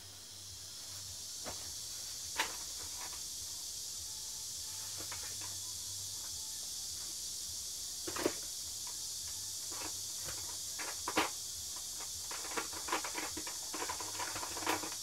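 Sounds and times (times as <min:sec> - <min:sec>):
steady hiss: 0:00.0 - 0:15.0
plastic cassette cases clicking: 0:12.3 - 0:15.0.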